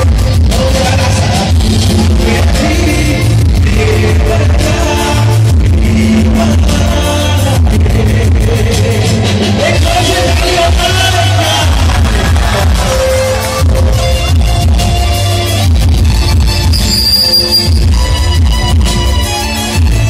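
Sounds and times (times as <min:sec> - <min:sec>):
person singing: 0:00.0 - 0:14.0
drums: 0:00.0 - 0:20.0
heavy bass: 0:00.0 - 0:20.0
keyboard: 0:00.0 - 0:20.0.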